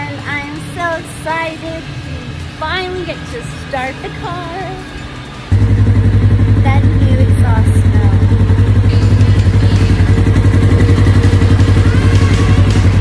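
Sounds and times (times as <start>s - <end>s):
engine running with deep pulsing: 5.5s - 13.0s.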